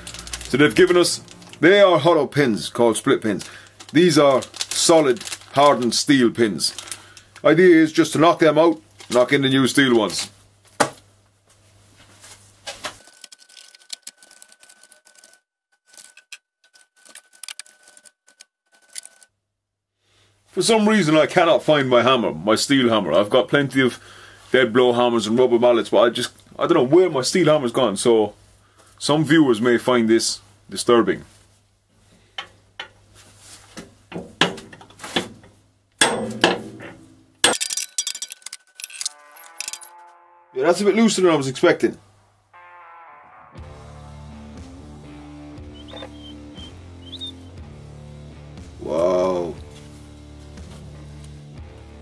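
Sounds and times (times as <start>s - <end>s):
metal knocks and clanks: 34.1s - 38.6s
metal hand tools clinking: 36.0s - 40.0s
faint high-pitched tone: 39.0s - 44.0s.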